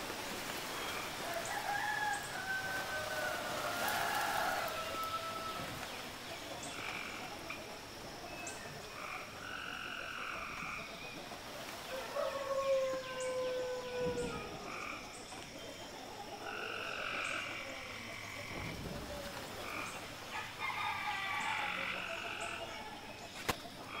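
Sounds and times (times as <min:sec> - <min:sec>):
frogs croaking: 0:00.0 - 0:24.0.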